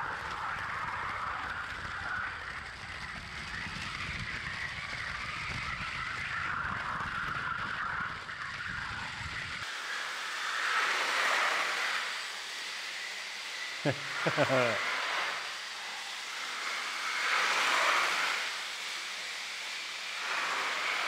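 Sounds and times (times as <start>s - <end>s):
toy train wheels rumbling: 0.0s - 21.0s
train drive whirring: 6.2s - 21.0s.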